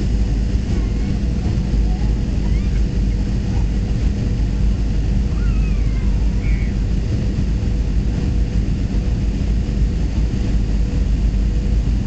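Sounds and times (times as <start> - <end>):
faint steady hum: 0.0 - 12.0
jet engine rumble: 0.0 - 12.0
rushing airflow: 0.0 - 12.0.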